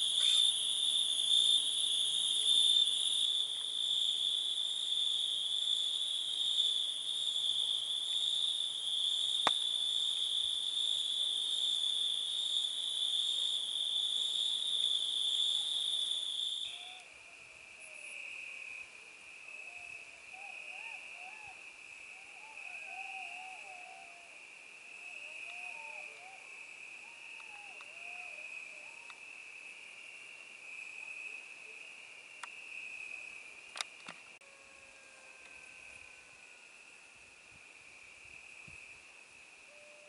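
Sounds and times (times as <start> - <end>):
crickets trilling: 0.0 - 40.0
low-pitched insect trill: 0.0 - 40.0
faint wavering calls: 16.6 - 17.2, 19.6 - 24.4, 25.1 - 29.2.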